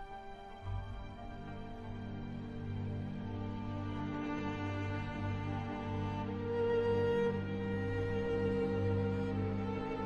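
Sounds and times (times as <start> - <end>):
slow background music: 0.0 - 10.0.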